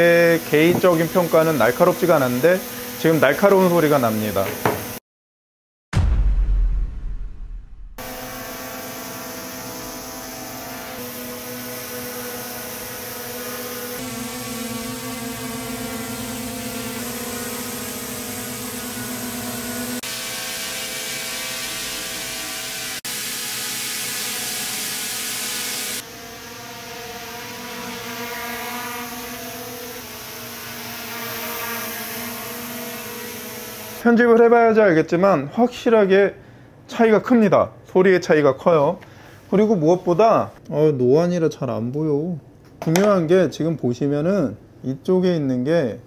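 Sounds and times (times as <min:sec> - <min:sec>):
whoosh: 0:06.0 - 0:08.5
drone propeller hum: 0:07.2 - 0:27.4.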